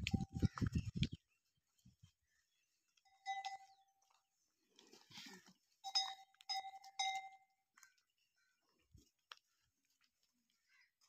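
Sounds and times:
cow bell clanging: 3.1 - 3.9, 5.8 - 7.5.

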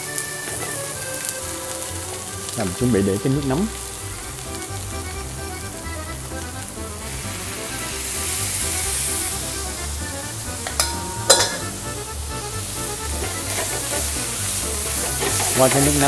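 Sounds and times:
background music: 0.0 - 16.0
food sizzling in frying pan: 0.0 - 16.0
metal clanks: 10.6 - 11.9.

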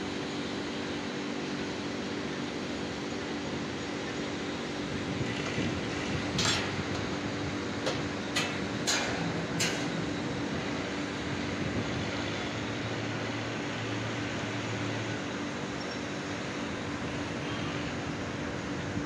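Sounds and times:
industrial machinery humming: 0.0 - 19.0
sharp knocks: 7.8 - 10.2.

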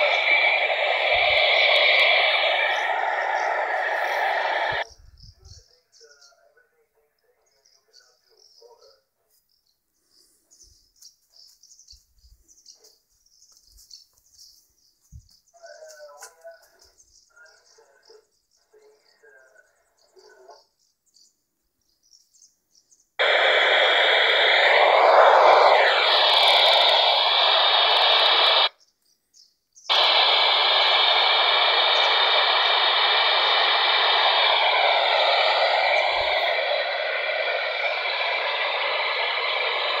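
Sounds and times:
radio static hiss: 0.0 - 4.8, 23.2 - 28.7, 29.9 - 40.0.

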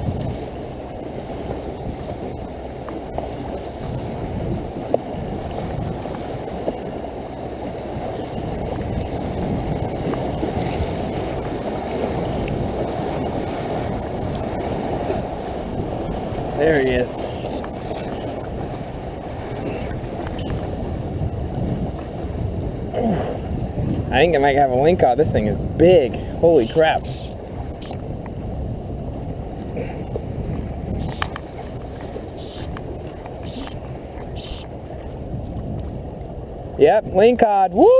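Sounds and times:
waves washing against rocks: 0.0 - 37.9
wind rumble on microphone: 0.0 - 37.9
faint clicks: 31.0 - 31.5.

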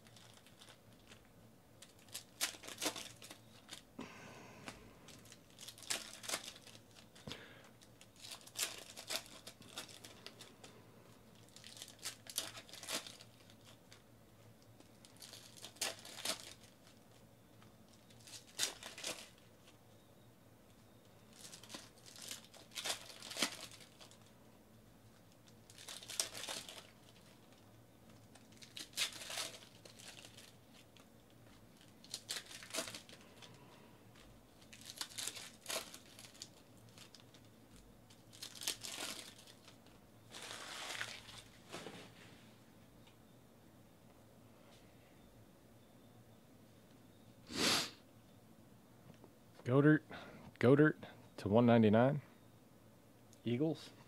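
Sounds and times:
foil wrappers tearing and crinkling: 0.0 - 1.2, 1.8 - 3.9, 5.1 - 7.2, 7.8 - 10.5, 11.4 - 14.0, 14.8 - 17.2, 17.9 - 19.5, 21.3 - 24.3, 25.4 - 27.6, 28.2 - 41.6.

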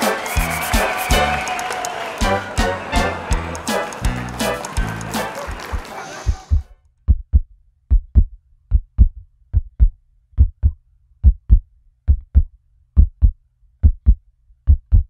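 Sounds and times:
heartbeat double thump: 5.7 - 15.0.

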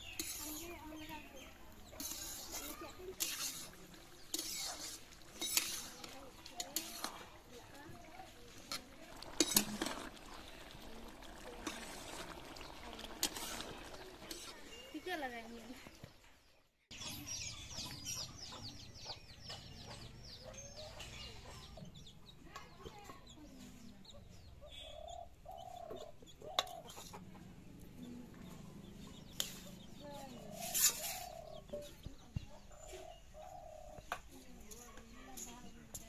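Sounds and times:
chickens clucking: 16.9 - 34.2.

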